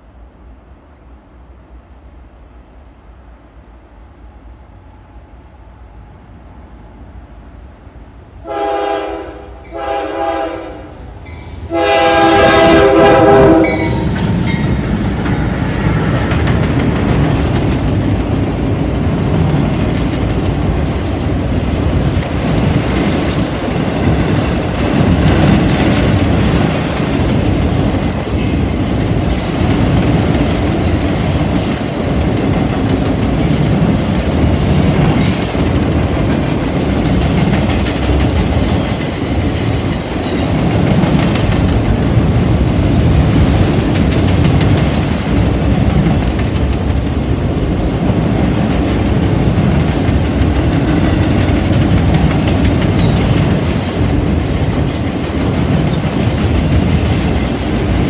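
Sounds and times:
freight train rumbling past: 0.0s - 58.0s
train wheels squealing: 19.7s - 20.2s, 20.8s - 40.6s, 44.4s - 45.6s, 52.0s - 58.0s.

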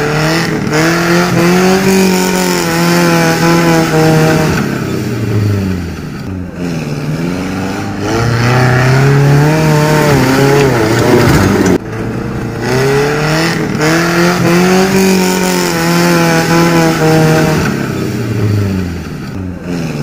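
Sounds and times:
engine revving hard: 0.0s - 11.8s, 12.5s - 20.0s.

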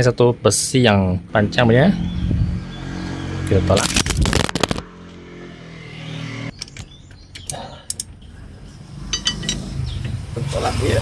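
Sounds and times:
metal bar clicking and clanking: 9.1s - 9.7s.

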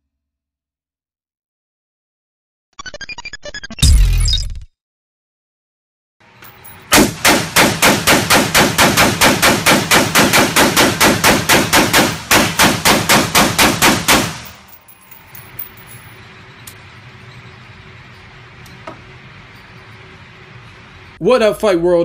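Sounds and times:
rifle shots rapid fire: 6.9s - 14.7s.

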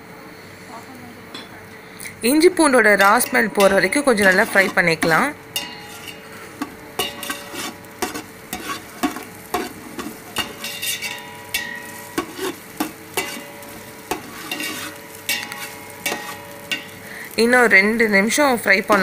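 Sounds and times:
light sizzle of frying: 0.0s - 19.0s
metal spatula scraping steel pot: 2.8s - 17.4s, 18.8s - 19.0s.

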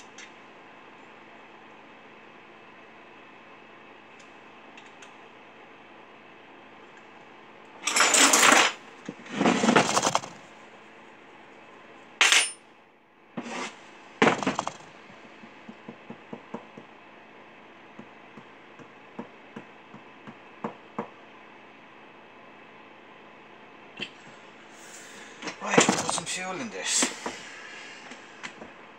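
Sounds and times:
metal tools clattering on workbench: 7.8s - 8.8s, 12.2s - 12.6s.

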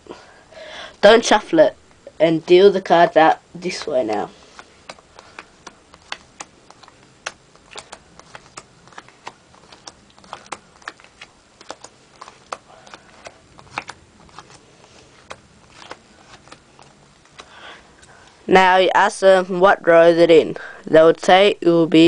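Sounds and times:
playing cards being dealt: 3.6s - 18.4s.

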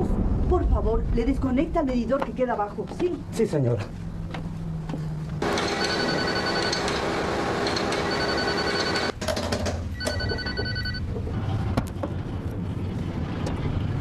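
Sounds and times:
elevator call button bell: 5.4s - 7.0s, 7.7s - 9.1s, 10.0s - 11.0s
electric bell ringing: 5.4s - 9.1s, 10.0s - 11.0s.

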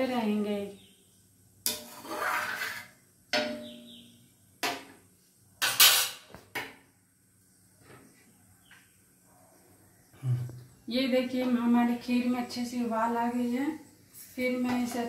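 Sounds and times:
utensil knocking metal pot: 3.3s - 4.0s.

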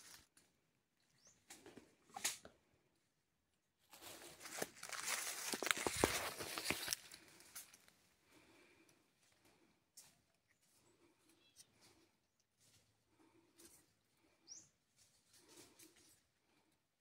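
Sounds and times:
leaves and twigs rustling: 0.0s - 0.4s, 3.8s - 8.8s, 9.4s - 16.7s.

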